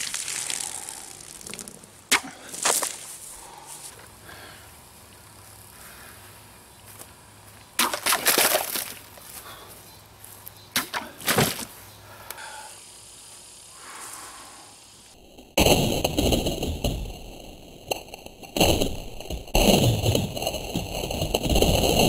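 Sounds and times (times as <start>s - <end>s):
water splashing: 0.0s - 3.0s, 7.8s - 9.0s.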